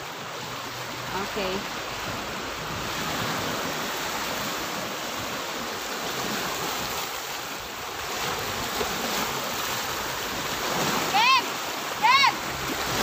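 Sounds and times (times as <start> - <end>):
small waves breaking on pebbles: 1.3 - 13.0.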